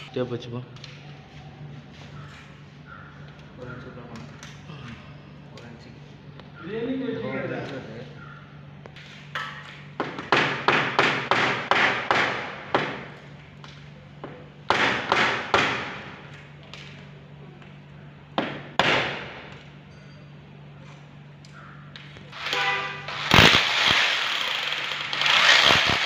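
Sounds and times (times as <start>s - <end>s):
hammer striking window frame: 10.0s - 13.1s, 14.7s - 16.1s, 18.4s - 19.3s.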